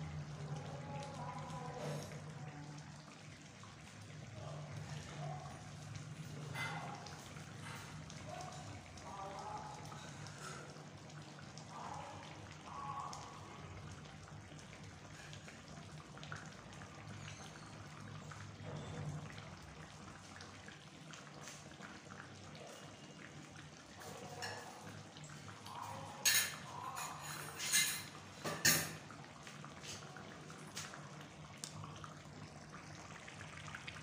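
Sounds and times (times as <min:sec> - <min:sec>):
bubbles popping in simmering pot: 0:06.9 - 0:24.0, 0:29.0 - 0:34.0.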